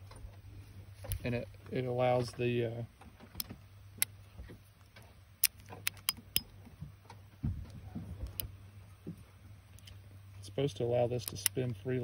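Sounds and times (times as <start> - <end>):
revolver cylinder clicking: 4.8 - 6.5, 11.2 - 11.8.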